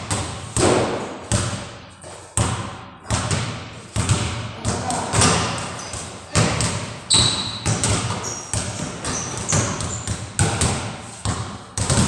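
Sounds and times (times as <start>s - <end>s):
basketballs bouncing on hard floor: 0.0s - 12.0s
sneaker squeaks: 4.7s - 12.0s.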